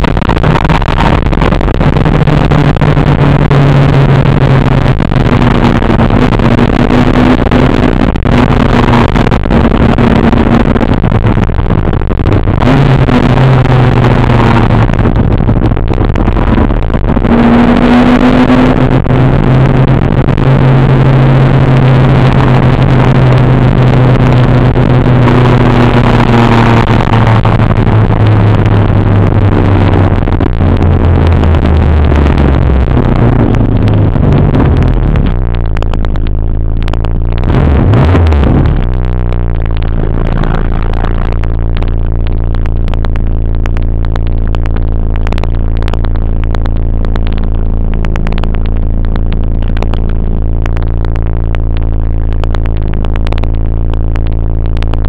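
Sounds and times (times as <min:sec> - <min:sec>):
car engine from inside cabin: 0:00.1 - 0:55.0.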